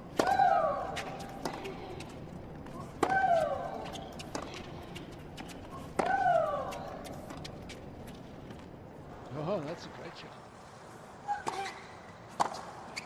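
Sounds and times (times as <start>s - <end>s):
racket hitting tennis ball: 0.1s - 2.1s, 2.9s - 8.2s, 11.5s - 12.7s.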